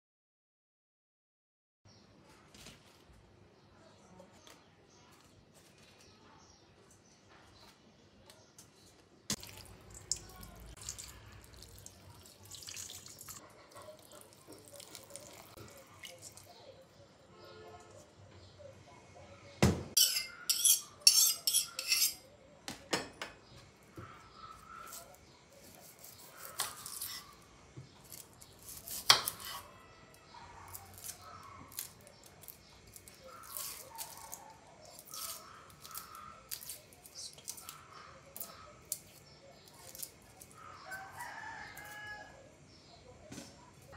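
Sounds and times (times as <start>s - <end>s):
water pouring into metal bowl: 9.4s - 13.4s
knife scraping shallot skins: 20.0s - 22.2s, 24.6s - 27.4s, 28.0s - 29.7s, 30.7s - 40.6s.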